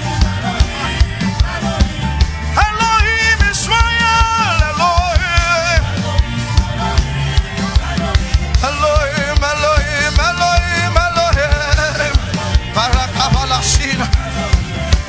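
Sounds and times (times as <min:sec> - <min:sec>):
live band with drum beat: 0:00.0 - 0:15.0
man singing into a microphone: 0:00.0 - 0:15.0.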